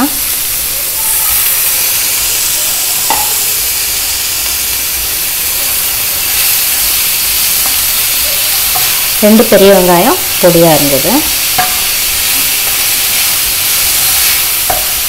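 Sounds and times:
onion sizzling in hot oil: 0:00.0 - 0:15.0
spatula stirring in pan: 0:00.9 - 0:15.0.

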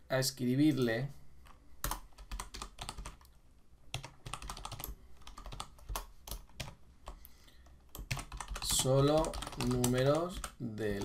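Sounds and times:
typing on computer keyboard: 0:01.8 - 0:03.3, 0:03.9 - 0:11.0.

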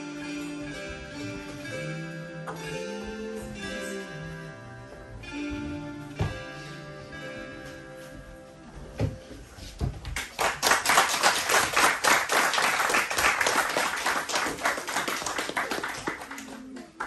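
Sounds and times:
group clapping: 0:10.0 - 0:17.0.

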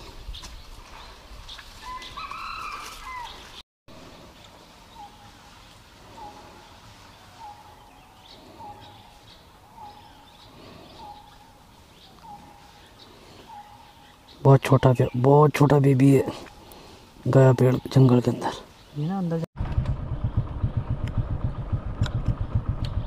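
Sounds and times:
birds whistling: 0:00.3 - 0:03.6, 0:06.1 - 0:15.3.

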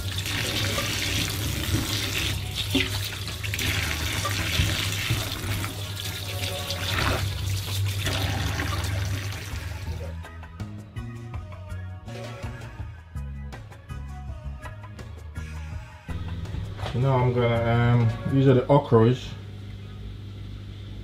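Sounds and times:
tap running into sink: 0:00.0 - 0:09.7.

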